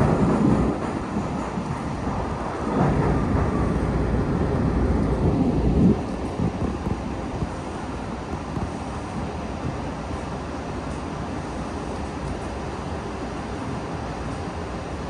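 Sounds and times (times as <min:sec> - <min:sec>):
subway car rumbling on rails: 0:00.0 - 0:15.0.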